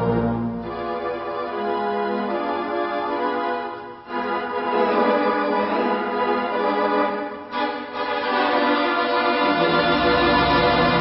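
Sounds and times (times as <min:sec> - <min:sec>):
organ sustained chords: 0:00.0 - 0:07.6.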